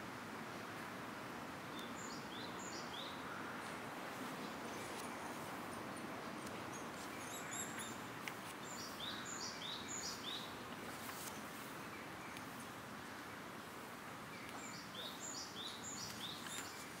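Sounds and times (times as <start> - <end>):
outdoor background noise: 0.0 - 17.0
bird chirping: 6.7 - 10.6, 14.3 - 17.0.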